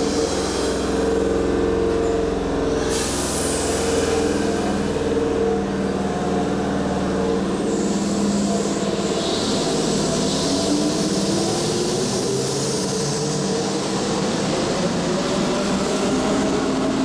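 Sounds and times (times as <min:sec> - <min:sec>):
electric train hum: 0:00.0 - 0:17.0
hiss: 0:02.8 - 0:04.9.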